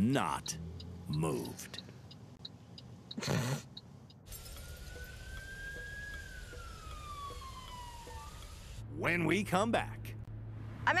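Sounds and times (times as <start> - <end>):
faint regular ticking: 0.0 - 8.6
road noise: 0.0 - 11.0
siren wailing: 4.5 - 8.8.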